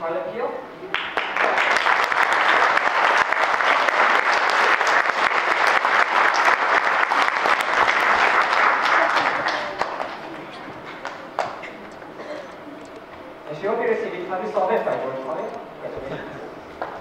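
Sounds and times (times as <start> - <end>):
audience applauding: 0.9 - 11.8.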